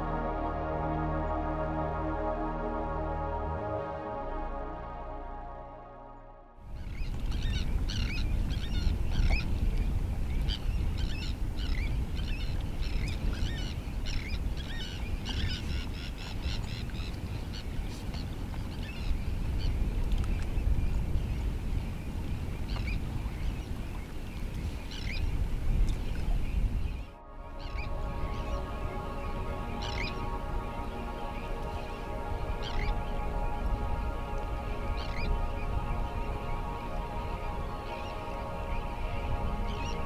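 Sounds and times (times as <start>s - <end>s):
steady low rumble: 0.0s - 12.1s, 27.0s - 40.0s
flock of birds calling: 27.4s - 40.0s.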